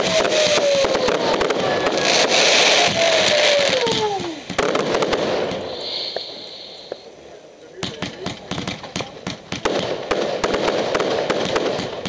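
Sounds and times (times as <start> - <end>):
firework bang: 0.0 - 7.1, 7.8 - 12.0
descending firework whistles: 0.0 - 7.2
faint hiss: 0.0 - 12.0
fireworks crackling and popping: 0.0 - 12.0.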